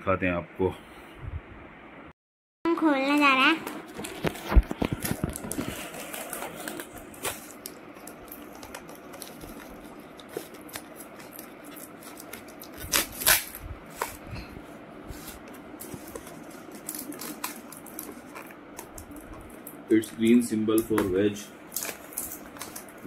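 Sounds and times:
paper rustling: 3.9 - 14.4
tape peeling off cardboard: 8.5 - 14.1.

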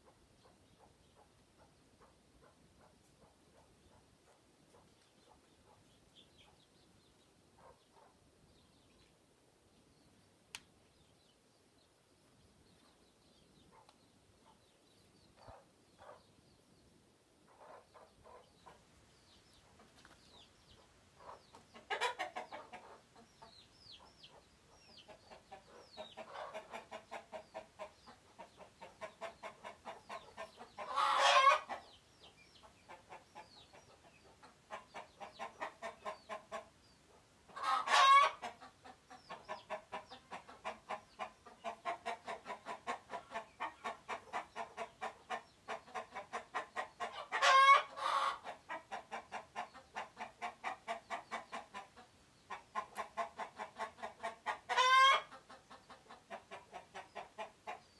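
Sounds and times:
chickens clucking: 0.0 - 9.1, 10.9 - 16.8, 17.4 - 57.9
chicken squawk: 29.1 - 31.8, 37.5 - 38.5, 45.9 - 49.3, 52.5 - 55.4.

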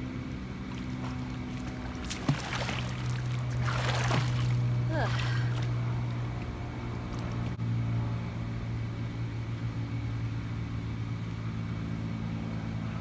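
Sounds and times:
low mechanical hum: 0.0 - 13.0
pool water sloshing: 0.4 - 7.6.

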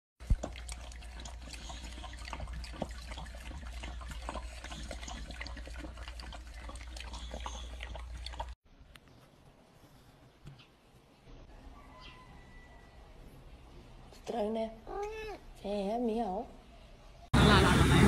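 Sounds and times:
dog lapping from metal bowl: 0.2 - 8.6.

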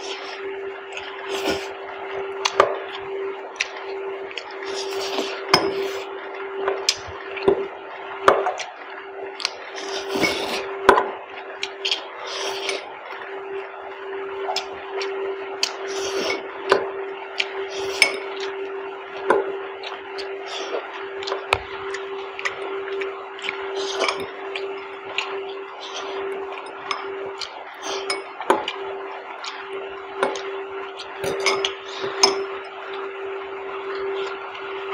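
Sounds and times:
slurping and chewing noodles: 0.0 - 6.2, 9.4 - 10.8, 11.6 - 13.3, 14.4 - 16.5, 17.3 - 19.2, 19.8 - 33.0
steady hum: 0.0 - 34.9.

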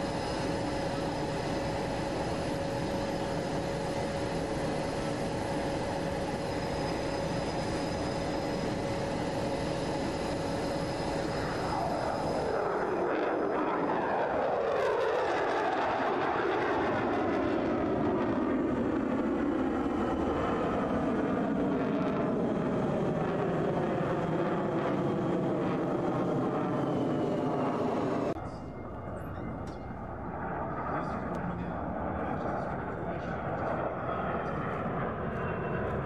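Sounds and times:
jet engines rushing overhead: 0.0 - 36.0.

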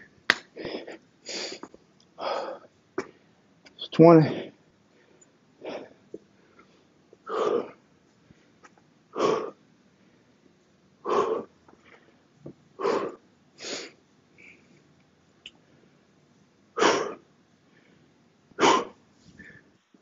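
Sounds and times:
man breathing hard: 0.5 - 3.4, 4.3 - 10.2, 11.0 - 12.2, 12.8 - 14.7.

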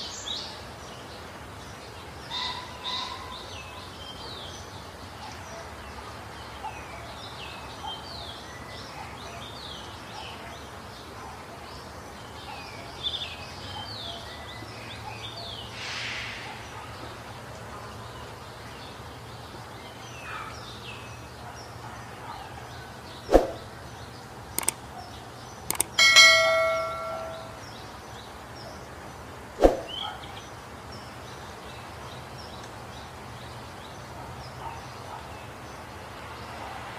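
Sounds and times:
bell-like ding: 26.0 - 27.6.

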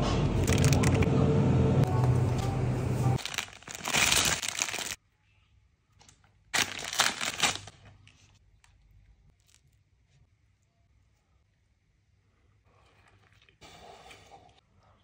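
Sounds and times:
fried chicken crackling and tearing: 3.2 - 5.0.

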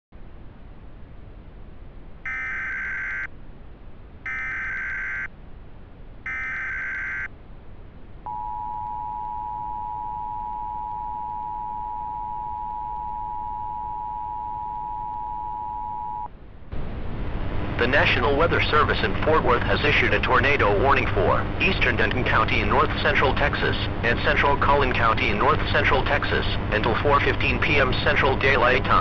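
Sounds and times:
screechy digital data bursts: 4.3 - 5.3, 6.3 - 7.3.

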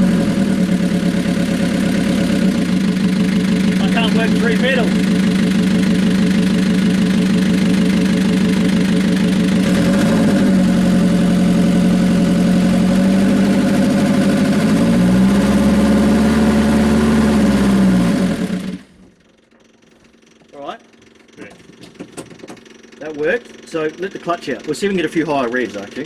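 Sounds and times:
van diesel engine revving and stalling: 0.0 - 19.0.

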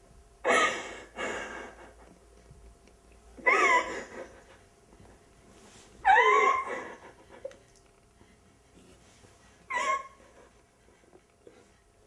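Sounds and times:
high-pitched whimpering cries: 3.4 - 4.6, 6.0 - 7.6, 9.6 - 11.8.

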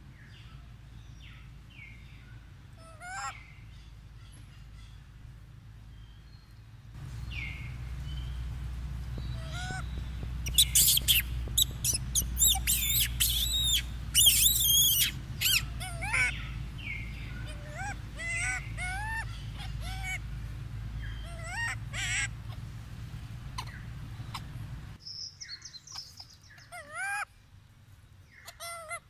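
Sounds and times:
low steady rumble: 0.0 - 29.0
baby monkey screaming: 2.8 - 3.4, 9.4 - 9.8, 10.4 - 20.2, 21.0 - 22.6, 23.6 - 24.5, 25.9 - 27.3, 28.4 - 29.0.

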